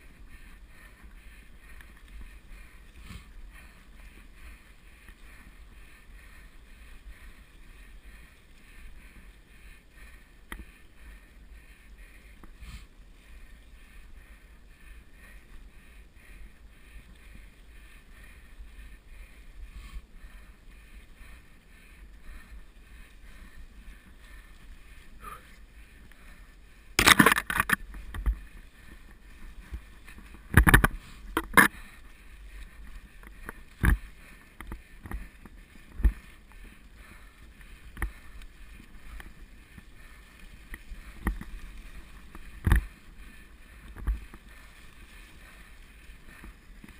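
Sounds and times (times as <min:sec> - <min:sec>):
bike tyres rumbling on trail: 0:00.0 - 0:46.9
wind on camera mount: 0:27.0 - 0:28.4.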